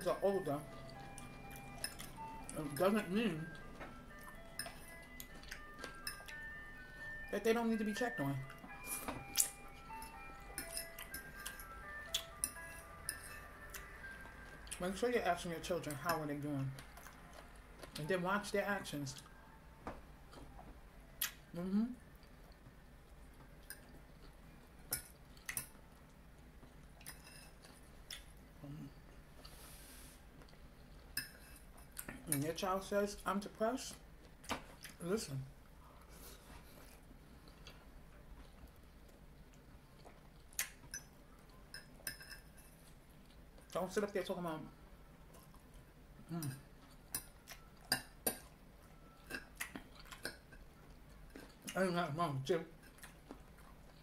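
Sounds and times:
fork clinking and scraping on plate: 41.7 - 42.8.

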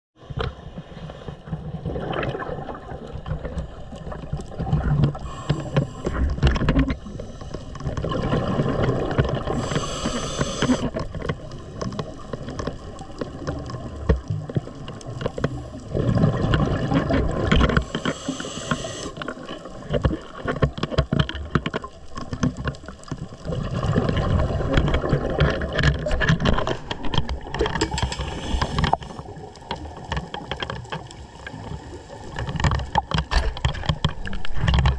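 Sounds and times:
gurgling exhaled bubbles: 1.5 - 20.7, 21.9 - 30.5
hissing regulator inhale: 5.1 - 7.9, 9.4 - 11.0, 17.7 - 19.4, 27.8 - 29.4.

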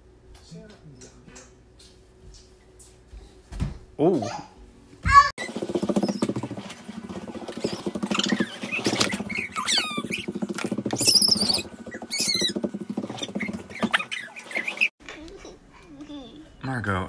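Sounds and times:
fast continuous rattling patter: 5.4 - 14.9.

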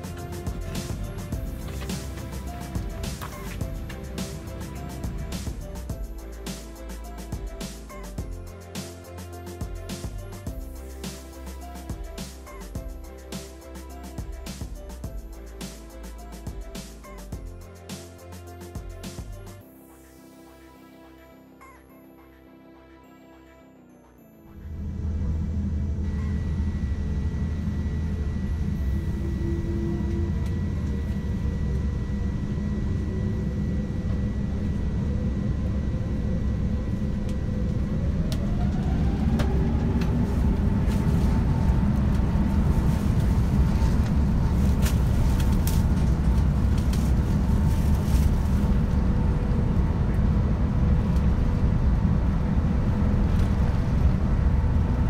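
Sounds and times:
jet engines whining: 24.8 - 55.0.

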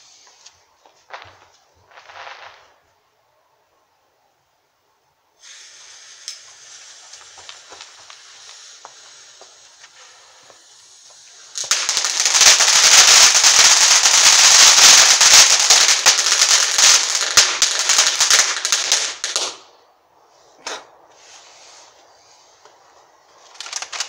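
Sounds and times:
firework hissing and crackling: 0.0 - 3.0, 5.3 - 24.0.

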